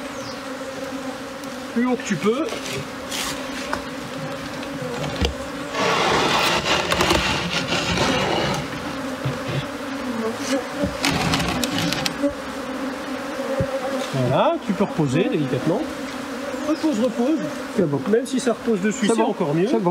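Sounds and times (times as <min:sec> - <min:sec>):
bees buzzing: 0:00.0 - 0:19.9
loud rustling: 0:02.5 - 0:09.9, 0:10.8 - 0:12.3.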